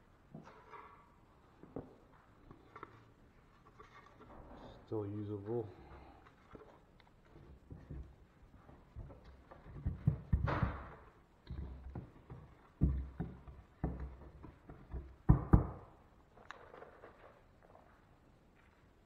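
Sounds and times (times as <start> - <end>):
drywall patch thumps and knocks: 7.3 - 16.0.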